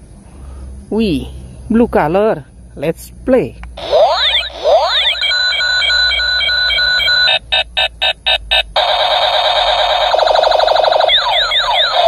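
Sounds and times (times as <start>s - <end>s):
toy gun electronic sound effects: 3.8s - 12.0s.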